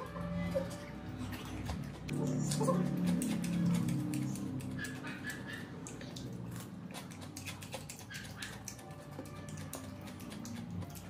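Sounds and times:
person chewing with wet mouth sounds: 0.0s - 11.0s.

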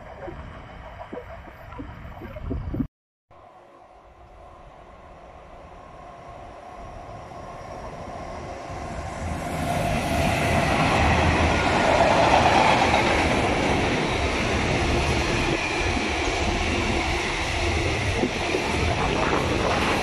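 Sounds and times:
freight train wheels on rails: 5.6s - 20.0s.

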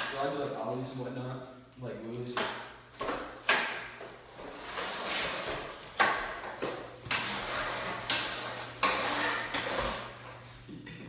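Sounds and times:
scooter wheels rattling on concrete: 3.0s - 10.3s.

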